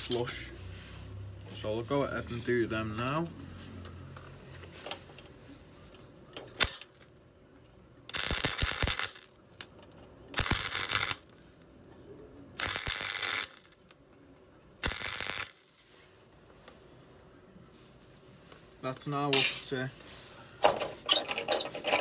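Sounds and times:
welding crackling bursts: 6.6s - 7.1s, 8.1s - 9.7s, 10.3s - 11.4s, 12.6s - 13.9s, 14.8s - 15.8s.

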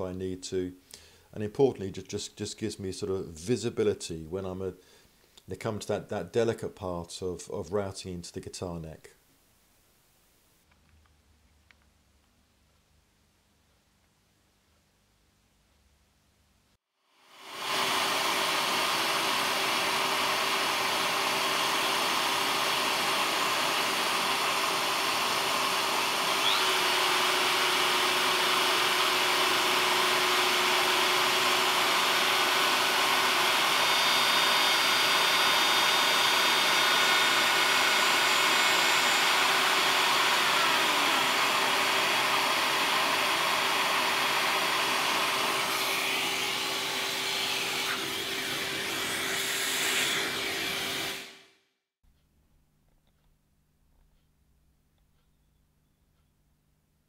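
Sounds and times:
router running with high whine: 17.2s - 51.4s.

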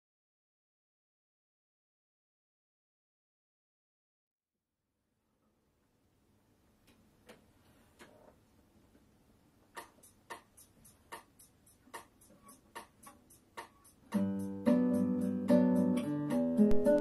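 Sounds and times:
classical guitar playing: 14.1s - 17.0s.

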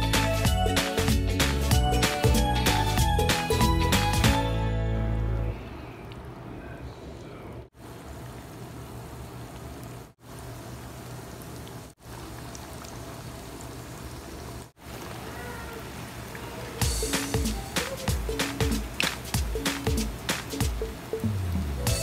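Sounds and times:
hot oil sizzling and bubbling: 8.1s - 22.0s.

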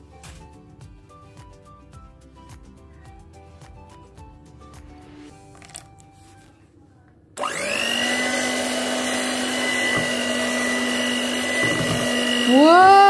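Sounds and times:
electric hand mixer whining: 7.4s - 13.0s.

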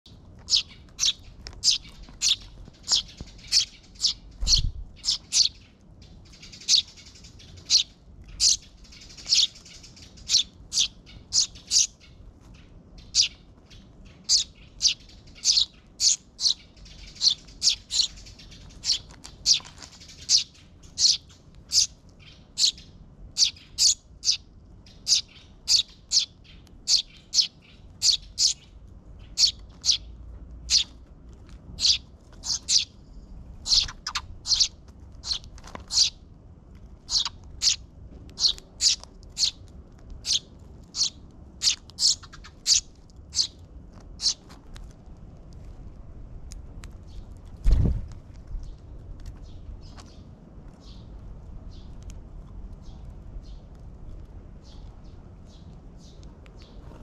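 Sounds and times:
fledglings begging chirps: 0.4s - 30.9s, 31.8s - 33.0s, 33.6s - 36.2s, 37.0s - 37.8s, 38.4s - 39.6s, 40.2s - 43.6s, 44.2s - 44.5s.

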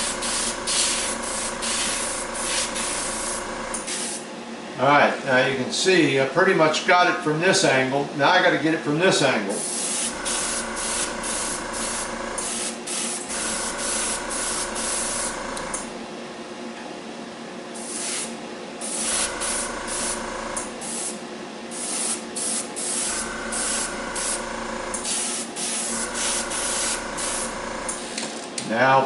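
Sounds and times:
motor hum: 0.0s - 3.9s, 10.0s - 16.2s, 19.0s - 20.9s, 22.8s - 28.3s
airbrush spraying hiss: 0.0s - 4.2s, 9.6s - 15.4s, 17.8s - 20.2s, 20.8s - 28.1s.

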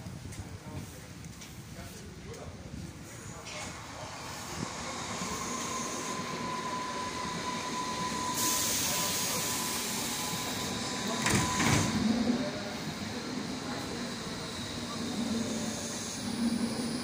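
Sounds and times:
train traction motor whine: 3.8s - 17.0s.

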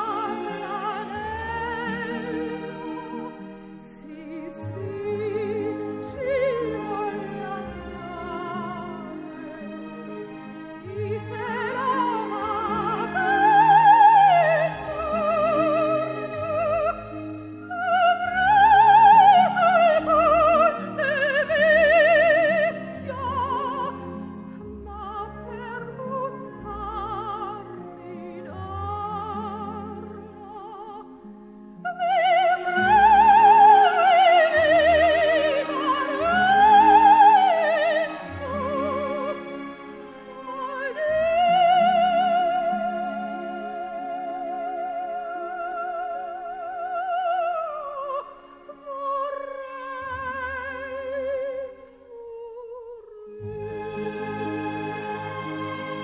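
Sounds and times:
operatic singing: 0.0s - 31.2s, 31.8s - 56.0s
instrumental accompaniment: 53.2s - 56.0s.

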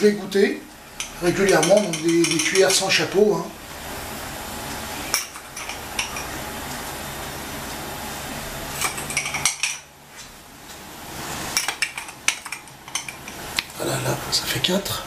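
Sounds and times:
steady low hum: 0.0s - 15.0s
metal spoon clinking on pot: 1.0s - 2.8s.

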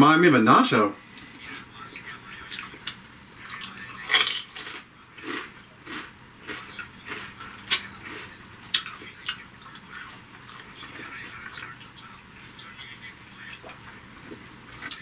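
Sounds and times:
potato crisp crunching: 2.4s - 11.8s.

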